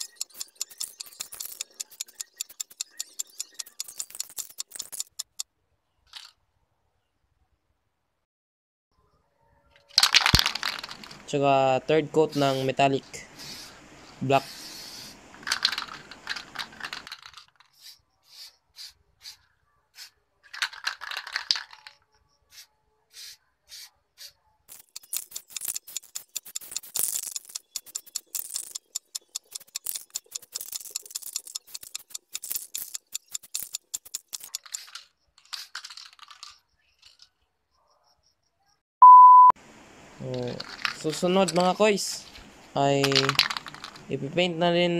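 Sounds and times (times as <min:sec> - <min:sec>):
spray can mixing ball rattling: 0:00.0 - 0:05.4, 0:10.0 - 0:11.2, 0:14.8 - 0:19.0, 0:20.0 - 0:21.9, 0:24.7 - 0:36.6, 0:40.3 - 0:41.9, 0:43.0 - 0:44.0
spray paint hissing: 0:00.0 - 0:05.4, 0:13.4 - 0:13.8, 0:14.4 - 0:16.4, 0:17.7 - 0:20.2, 0:22.5 - 0:35.0.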